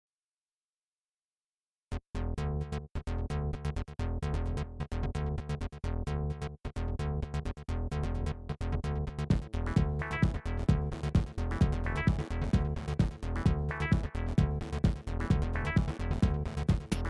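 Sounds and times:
electronic synthesizer music: 0:09.0 - 0:17.0.

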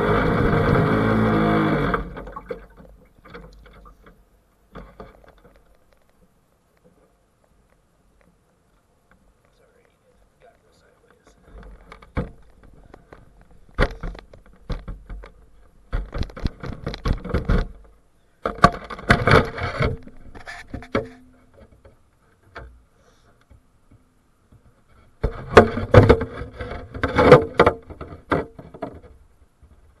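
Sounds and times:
boat hull handling clatter: 0:11.4 - 0:22.8, 0:23.8 - 0:30.0.

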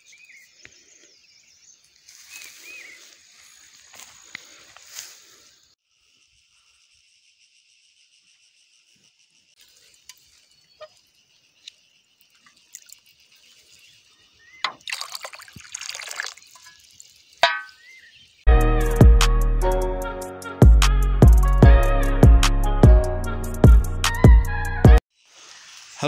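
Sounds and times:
insect chirring: 0:00.0 - 0:18.4, 0:25.1 - 0:26.0
water poured into glass jar: 0:14.7 - 0:17.4.

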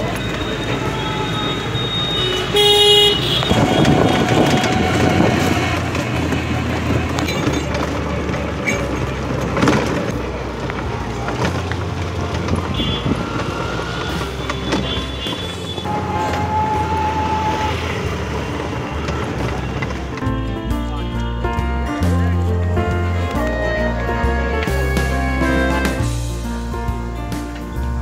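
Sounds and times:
vehicle horn honking: 0:00.0 - 0:05.6, 0:12.6 - 0:18.2
street traffic: 0:00.0 - 0:28.0.

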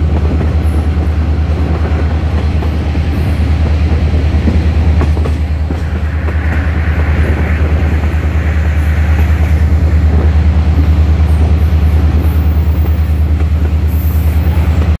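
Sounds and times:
diesel locomotive drone: 0:00.0 - 0:15.0
train cars rattling on rails: 0:00.0 - 0:15.0.

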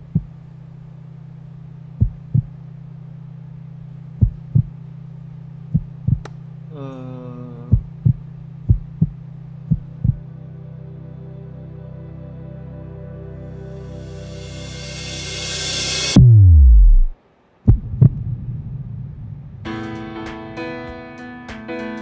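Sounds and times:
heartbeat thumps: 0:00.0 - 0:00.3, 0:02.0 - 0:02.6, 0:04.2 - 0:04.8, 0:05.7 - 0:06.3, 0:07.7 - 0:10.2, 0:16.2 - 0:19.6
steady low hum: 0:00.0 - 0:19.7
falling tone: 0:14.0 - 0:19.7.

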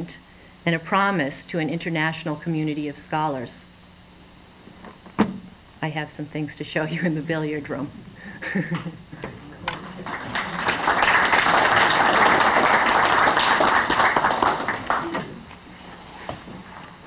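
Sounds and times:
audience applauding: 0:09.6 - 0:15.6.

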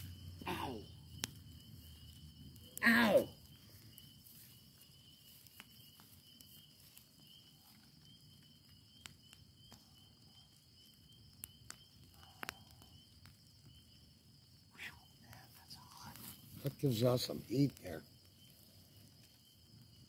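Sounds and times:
crickets chirping: 0:00.0 - 0:20.0
fire crackling: 0:00.0 - 0:20.0.

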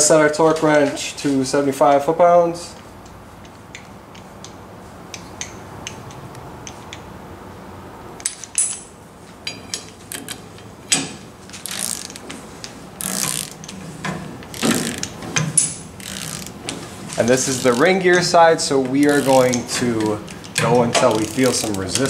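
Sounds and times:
ratcheting torque wrench clicking: 0:11.6 - 0:12.2, 0:13.0 - 0:13.8, 0:14.4 - 0:18.3, 0:19.0 - 0:22.0.

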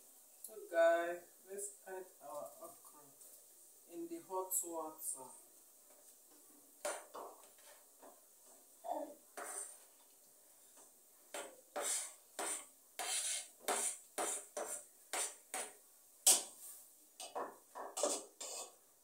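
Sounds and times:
utensil scraping chopping board: 0:11.8 - 0:15.7, 0:18.0 - 0:18.7.

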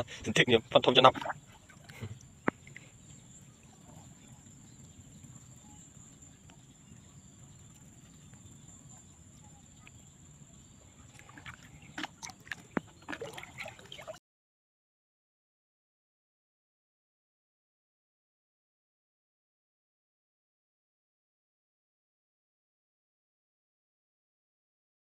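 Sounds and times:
water splashing and dripping: 0:00.0 - 0:09.1, 0:10.8 - 0:14.2.

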